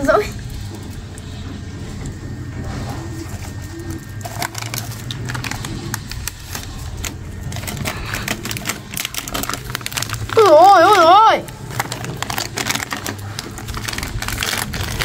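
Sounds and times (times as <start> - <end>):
doves cooing: 0.0 - 15.0
steady low hum: 0.0 - 15.0
sharp clicks and crackles: 3.5 - 15.0.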